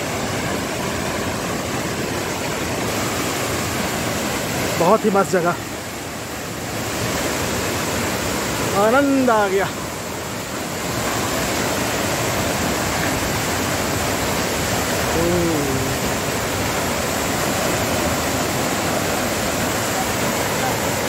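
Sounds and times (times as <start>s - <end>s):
waterfall rushing: 0.0s - 21.0s
person speaking: 15.1s - 16.3s.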